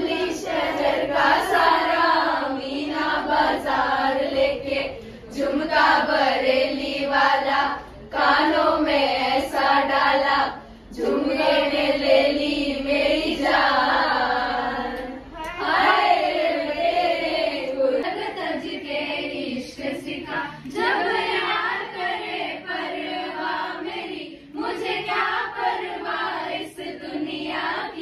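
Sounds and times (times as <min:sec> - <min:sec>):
women singing chant-like song: 0:00.0 - 0:28.0.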